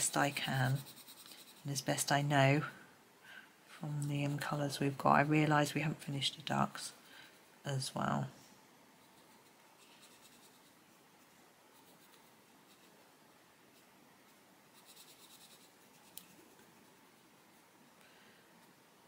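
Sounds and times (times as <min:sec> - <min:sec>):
coloured pencil scratching on paper: 0:00.0 - 0:02.2, 0:09.0 - 0:10.9, 0:11.7 - 0:13.0, 0:13.7 - 0:17.7.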